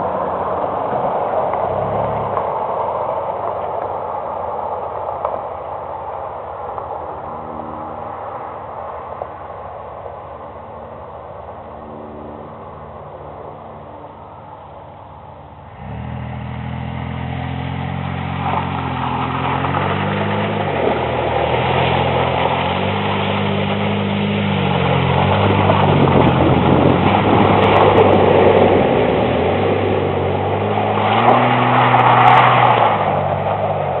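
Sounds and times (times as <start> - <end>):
truck engine revving: 11.8 - 34.0
water splashing: 15.7 - 34.0.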